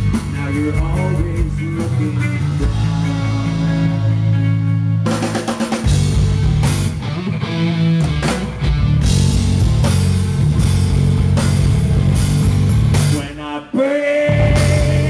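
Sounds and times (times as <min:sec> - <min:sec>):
bass guitar: 0:00.0 - 0:15.0
drums: 0:00.0 - 0:15.0
electric guitar chord: 0:02.4 - 0:05.2.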